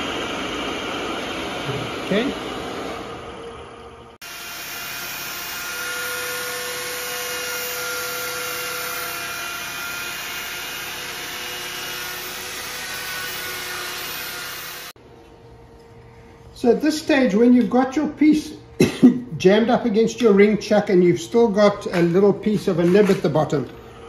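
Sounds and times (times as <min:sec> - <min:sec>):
power sander on wood: 0:00.0 - 0:03.2, 0:04.2 - 0:15.0.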